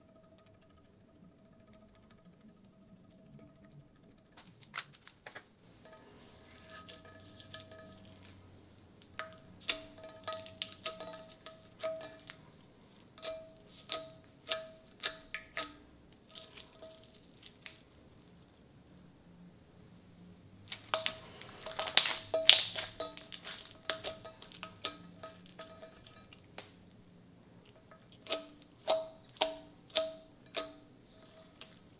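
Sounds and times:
slime clicking and popping: 0:20.7 - 0:25.3.

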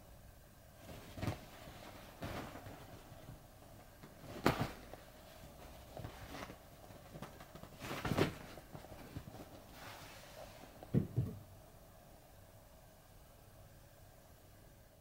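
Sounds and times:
cat paws thumping on fabric: 0:00.8 - 0:11.4.

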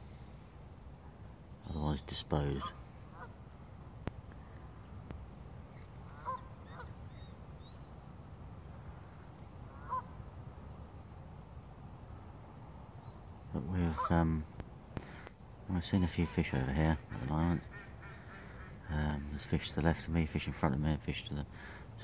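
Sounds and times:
low steady rumble: 0:00.0 - 0:22.0
distant geese honking: 0:02.4 - 0:03.4, 0:05.7 - 0:07.7, 0:08.8 - 0:10.2, 0:13.8 - 0:14.4, 0:16.0 - 0:19.2
small birds chirping: 0:04.3 - 0:10.8, 0:12.8 - 0:14.2.

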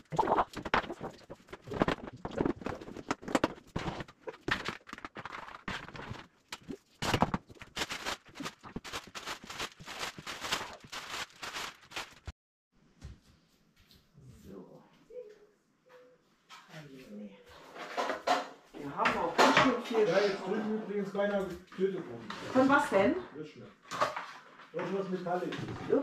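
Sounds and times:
plastic containers knocking and clattering: 0:00.0 - 0:12.0, 0:17.8 - 0:20.0, 0:23.8 - 0:26.0.

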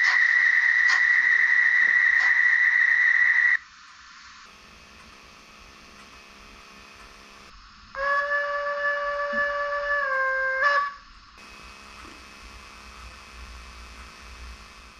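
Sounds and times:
faint steady hiss: 0:03.1 - 0:14.9
model train steam whistle: 0:07.9 - 0:11.1.

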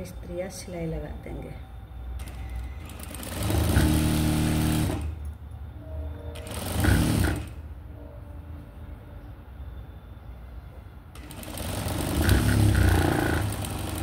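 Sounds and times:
sewing machine stitching: 0:02.2 - 0:05.2, 0:06.4 - 0:07.6, 0:11.2 - 0:14.0.

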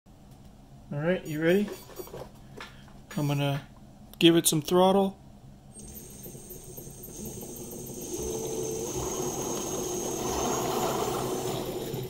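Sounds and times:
electric motor whining: 0:05.8 - 0:12.0.

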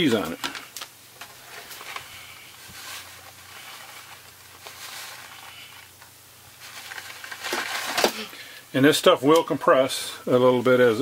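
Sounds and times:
plastic bag rustling: 0:00.1 - 0:08.6.

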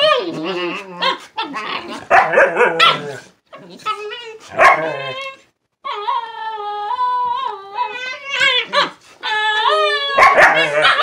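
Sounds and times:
dog whining: 0:00.0 - 0:11.0
dogs barking roughly: 0:01.9 - 0:03.3, 0:04.5 - 0:05.0, 0:10.2 - 0:11.0.

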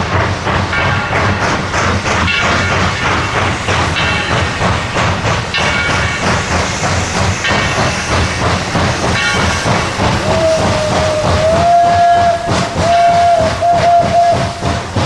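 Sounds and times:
steam locomotive exhaust chuffs: 0:00.0 - 0:15.0
steam whistle: 0:10.2 - 0:14.8.

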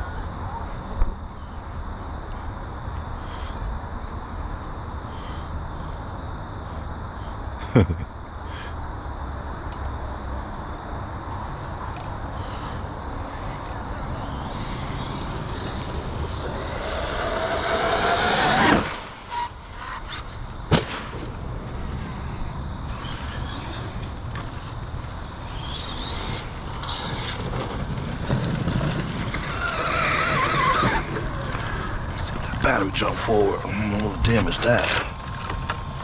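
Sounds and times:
electric motor whining: 0:13.3 - 0:20.4.

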